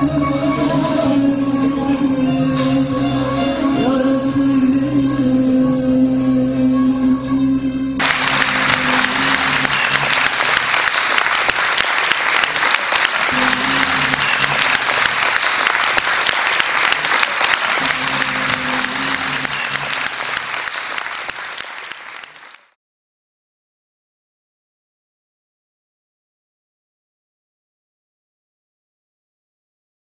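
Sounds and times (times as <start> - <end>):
audience applauding: 8.0 - 22.8.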